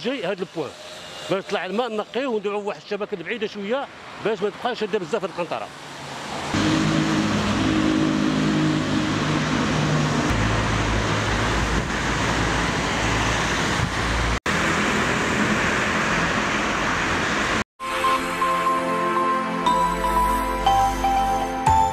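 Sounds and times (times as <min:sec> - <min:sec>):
traffic on a wet road: 0:00.0 - 0:17.6
engine humming: 0:06.4 - 0:17.6.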